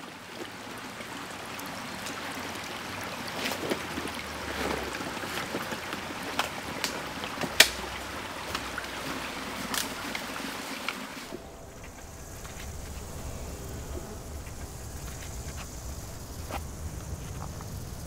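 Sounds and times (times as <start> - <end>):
creek running: 0.0 - 18.0
twigs and stones crackling underfoot: 11.3 - 18.0.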